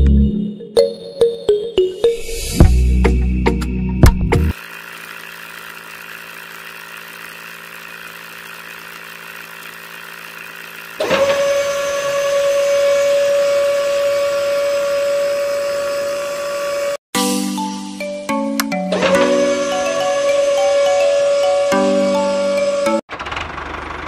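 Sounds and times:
motor high whine: 0:04.5 - 0:17.0, 0:19.0 - 0:23.0
small motor low hum: 0:04.5 - 0:17.0.

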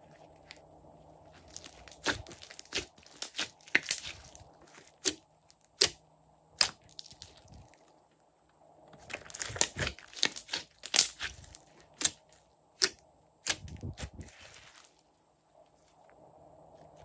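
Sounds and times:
slime squelching: 0:00.0 - 0:06.0, 0:06.6 - 0:08.0, 0:08.9 - 0:15.0.

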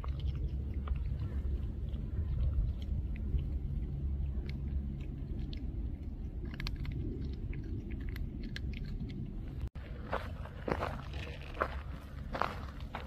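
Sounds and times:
cat crunching dry kibble: 0:00.0 - 0:09.7, 0:10.6 - 0:13.0
low rumble: 0:00.0 - 0:13.0.

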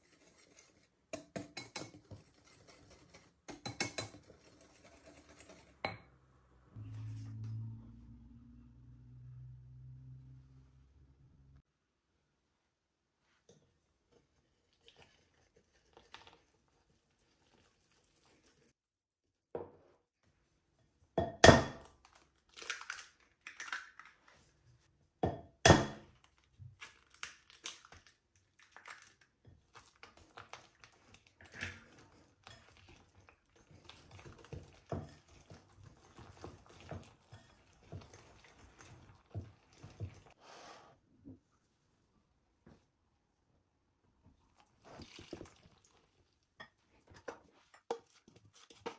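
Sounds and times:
whisk scraping glass bowl: 0:00.0 - 0:05.9, 0:30.8 - 0:40.4, 0:47.2 - 0:48.9
eggs cracking: 0:21.8 - 0:24.3, 0:26.1 - 0:31.9.

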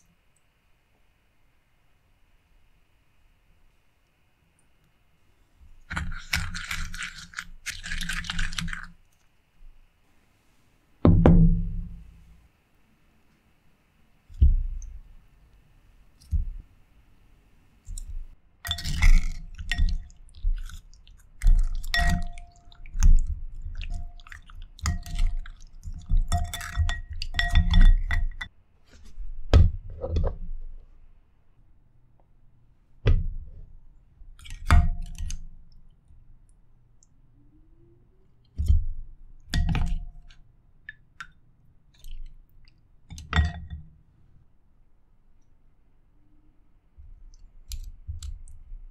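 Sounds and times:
wet squishing of food: 0:05.8 - 0:09.4, 0:17.8 - 0:28.5, 0:39.3 - 0:42.9
utensils knocking glass bowl: 0:21.6 - 0:22.7.

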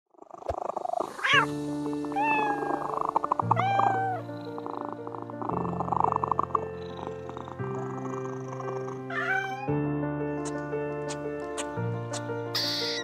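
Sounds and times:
cat meowing: 0:01.2 - 0:01.5, 0:02.1 - 0:04.3, 0:09.1 - 0:09.8, 0:12.6 - 0:13.0
background music with held chords: 0:01.4 - 0:13.0.

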